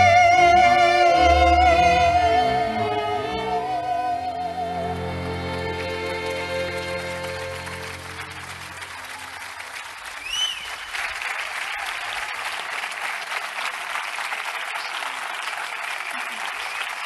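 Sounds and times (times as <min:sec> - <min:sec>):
string orchestra chord: 0:00.0 - 0:09.0
audience applause: 0:04.8 - 0:17.0
short high whistle: 0:10.2 - 0:10.9.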